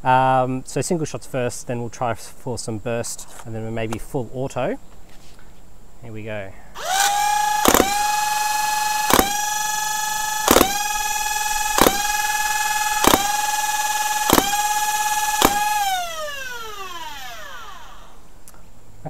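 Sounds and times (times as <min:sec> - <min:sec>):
flywheel motors whining: 0:06.8 - 0:18.2
toy blaster shots: 0:06.8 - 0:18.2.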